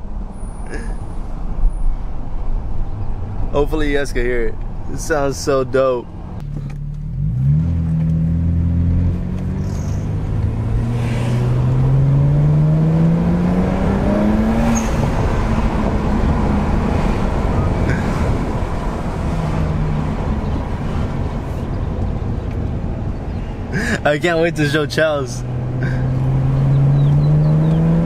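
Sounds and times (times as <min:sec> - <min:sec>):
car engine accelerating: 0:06.2 - 0:28.0.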